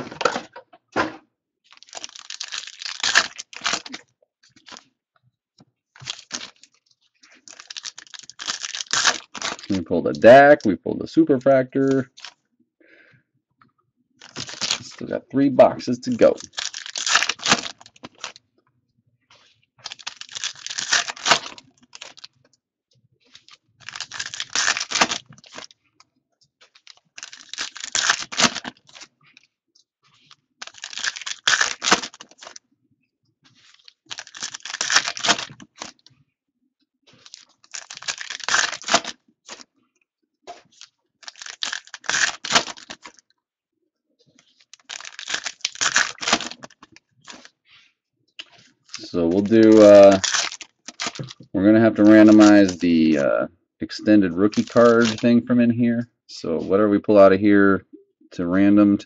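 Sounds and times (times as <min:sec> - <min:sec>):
foil packs tearing: 0:01.7 - 0:04.0, 0:06.0 - 0:06.7, 0:07.3 - 0:10.3, 0:14.2 - 0:15.1, 0:15.7 - 0:18.4, 0:19.8 - 0:22.3, 0:23.4 - 0:25.7, 0:26.7 - 0:29.1, 0:30.2 - 0:32.6, 0:33.6 - 0:36.1, 0:37.2 - 0:39.6, 0:40.6 - 0:43.2, 0:44.5 - 0:47.5, 0:48.6 - 0:51.4, 0:52.0 - 0:53.2, 0:54.4 - 0:55.3
cards rustling: 0:06.0 - 0:12.4, 0:14.2 - 0:18.4, 0:19.3 - 0:22.4, 0:23.3 - 0:25.8, 0:26.6 - 0:29.5, 0:30.1 - 0:32.6, 0:33.5 - 0:36.1, 0:37.1 - 0:39.7, 0:40.5 - 0:43.2, 0:44.3 - 0:47.8, 0:48.4 - 0:53.3, 0:54.3 - 0:55.4.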